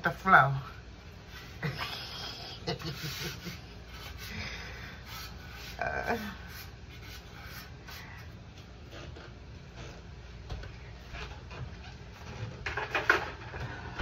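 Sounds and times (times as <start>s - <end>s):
dried herbs rubbed on metal grate: 5.0s - 8.3s.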